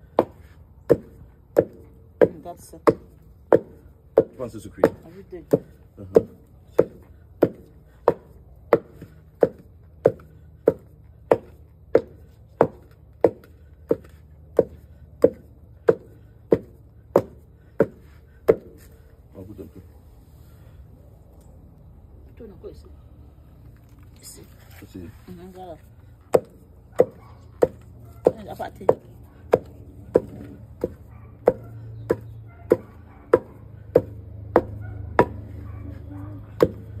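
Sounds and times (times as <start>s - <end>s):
pestle pounding in wooden mortar: 0.0s - 18.8s, 26.3s - 35.5s, 36.6s - 37.0s.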